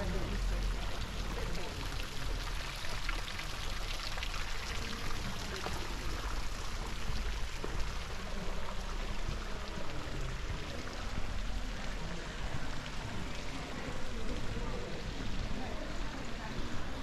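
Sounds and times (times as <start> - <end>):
water splashing and running: 0.0 - 17.0.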